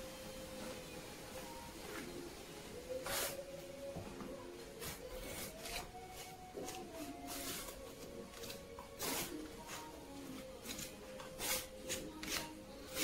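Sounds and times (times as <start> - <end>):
trowel scraping mortar: 8.4 - 9.9, 10.6 - 13.0.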